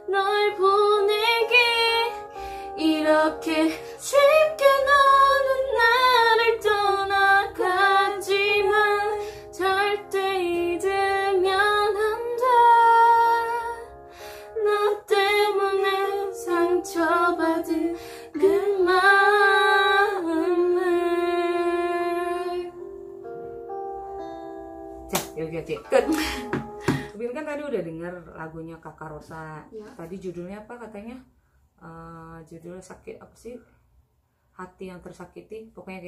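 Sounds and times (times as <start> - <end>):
two women singing in unison: 0.0 - 13.8, 14.6 - 22.7
guitar backing track: 22.6 - 27.2.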